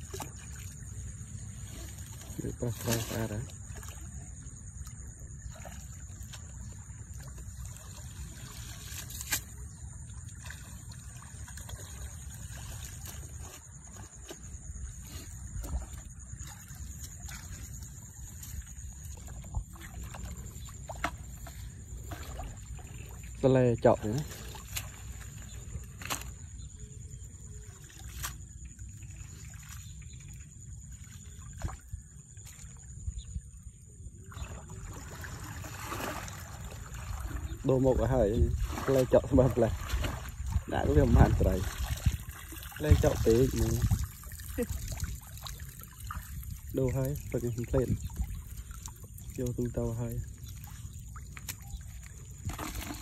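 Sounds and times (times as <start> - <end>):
wet grass pulled from water: 0.0 - 4.9, 5.5 - 26.6, 27.7 - 31.8, 34.4 - 37.7, 38.4 - 53.0
water trickling and dripping: 36.0 - 52.4.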